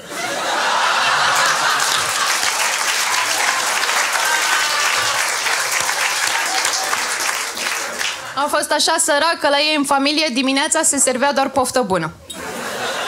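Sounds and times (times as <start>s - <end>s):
audience laughing: 0.0s - 8.6s, 12.3s - 13.0s
audience applauding: 0.4s - 8.4s.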